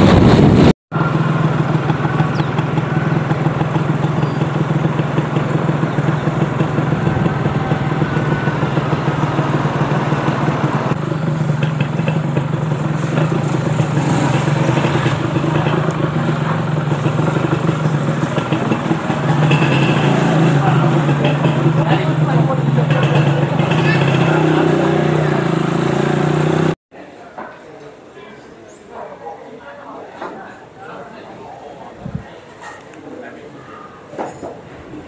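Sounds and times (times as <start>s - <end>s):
motorcycle engine running: 0.0s - 26.8s.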